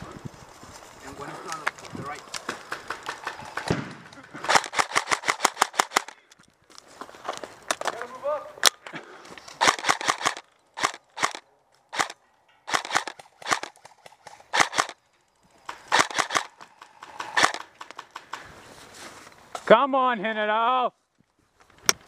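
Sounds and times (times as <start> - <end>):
airsoft rifle fire: 2.7 - 6.2, 9.6 - 13.8, 14.5 - 15.0, 15.9 - 18.1.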